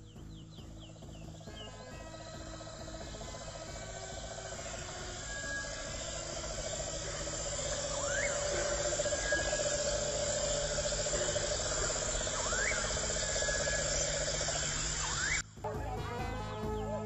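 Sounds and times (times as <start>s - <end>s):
insects trilling: 0.0s - 15.7s
animal rising-falling call: 2.0s - 15.4s.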